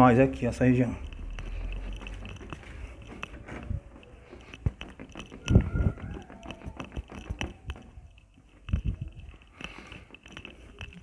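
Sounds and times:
thumps: 0:01.7 - 0:09.3.

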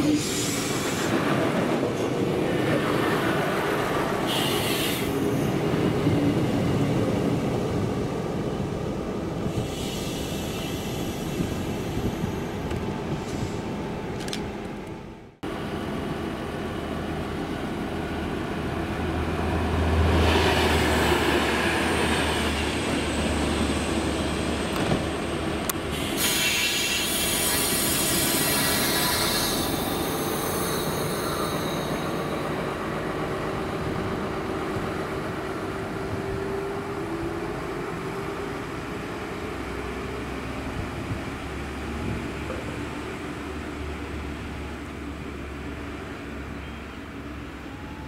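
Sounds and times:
diesel train engine hum: 0:00.0 - 0:48.0
high squealing and hissing: 0:26.0 - 0:32.4.

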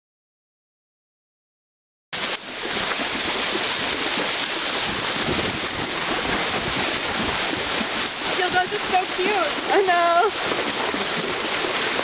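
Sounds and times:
horses wading through water: 0:02.2 - 0:12.0
wind on microphone: 0:02.6 - 0:12.0.

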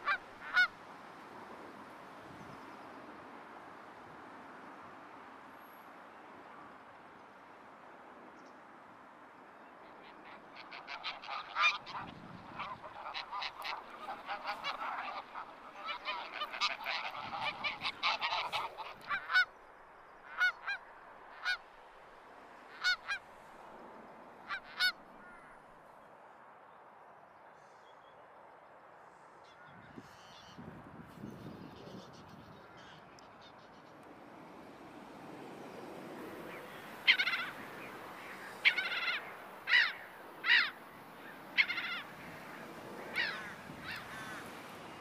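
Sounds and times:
geese honking: 0:00.0 - 0:00.7, 0:10.0 - 0:19.5, 0:20.3 - 0:20.8, 0:21.4 - 0:21.6, 0:22.7 - 0:23.2, 0:24.4 - 0:25.5, 0:34.8 - 0:45.0
steady background hiss: 0:33.7 - 0:45.0.

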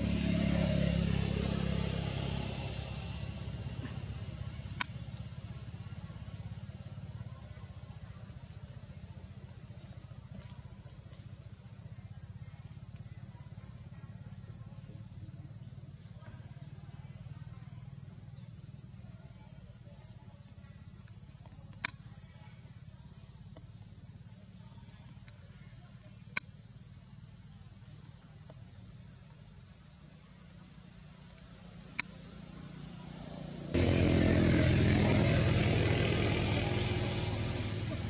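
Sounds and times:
high-pitched insect drone: 0:20.6 - 0:38.0
loud rumbling noise: 0:33.8 - 0:38.0.

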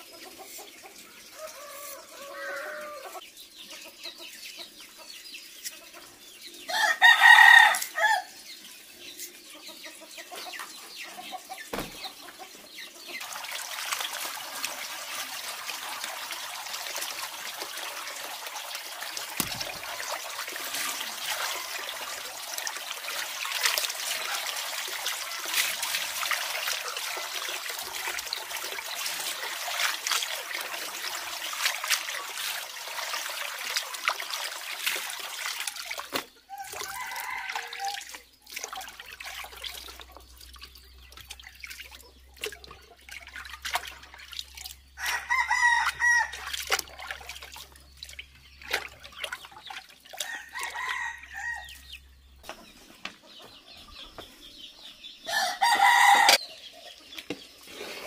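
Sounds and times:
chicken calling: 0:01.4 - 0:03.2
rooster crowing: 0:01.4 - 0:03.2, 0:06.7 - 0:08.3, 0:45.0 - 0:46.4, 0:55.3 - 0:56.4
small water splashes: 0:10.5 - 0:52.7
water pouring into a wooden tub: 0:13.2 - 0:51.8.

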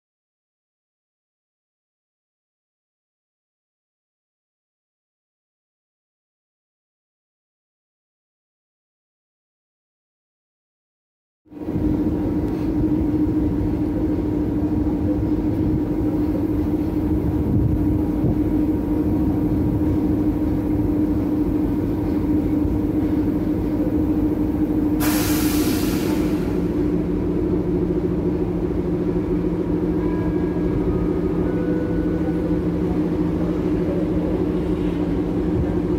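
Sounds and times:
diesel locomotive engine droning: 0:11.5 - 0:35.9
compressed air hiss: 0:25.0 - 0:26.7.

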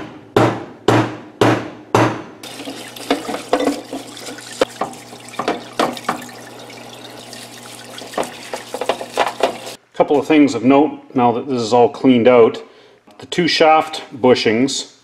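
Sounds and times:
brush scrubbing metal housing: 0:02.4 - 0:09.8
solvent running from nozzle: 0:02.4 - 0:09.8.

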